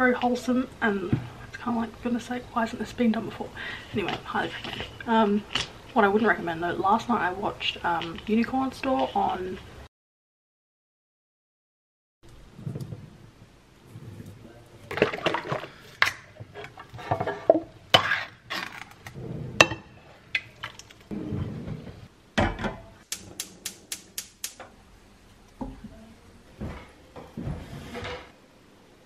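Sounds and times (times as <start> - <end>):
sharp clicks: 23.1 - 24.6.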